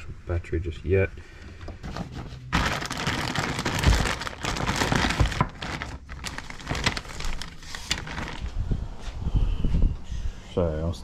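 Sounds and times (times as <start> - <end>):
plastic bags crinkling: 1.8 - 8.6.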